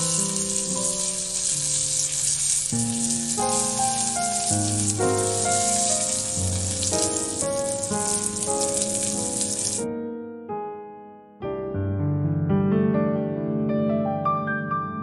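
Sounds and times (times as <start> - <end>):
chicken sizzling in oil: 0.0 - 9.9.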